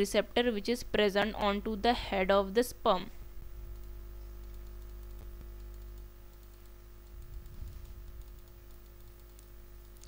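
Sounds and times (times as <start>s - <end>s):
steady electrical hum: 0.0s - 10.0s
computer clicking and tapping: 3.6s - 10.0s.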